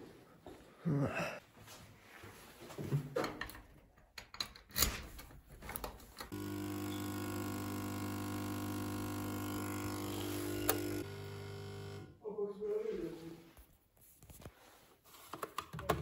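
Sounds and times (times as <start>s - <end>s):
coffee machine dispensing: 6.3s - 12.1s.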